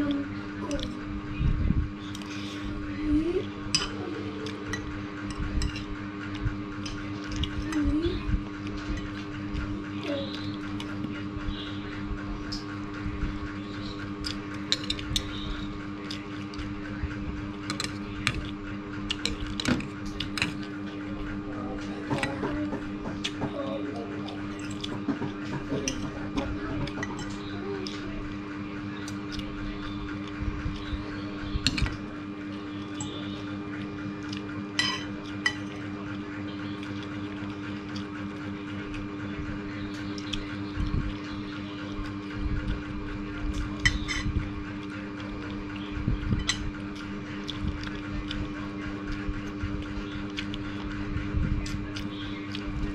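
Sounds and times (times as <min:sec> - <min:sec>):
steady hum: 0:00.0 - 0:52.9
chewing: 0:12.5 - 0:52.9
cutlery clinking and scraping plate: 0:34.8 - 0:35.8.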